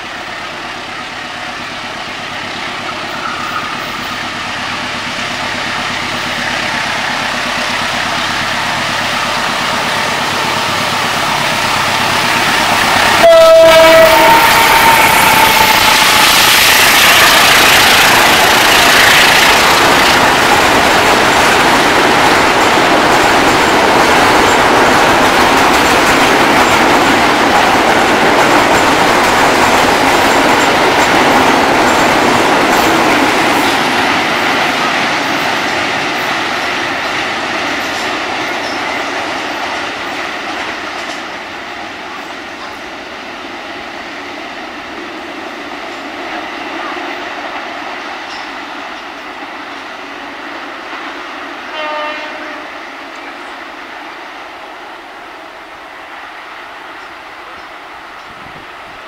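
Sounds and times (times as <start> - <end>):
diesel locomotive engine: 0.0 - 59.0
train horn blast: 13.0 - 16.5, 51.7 - 52.8
clickety-clack of wagons rolling: 19.5 - 36.3.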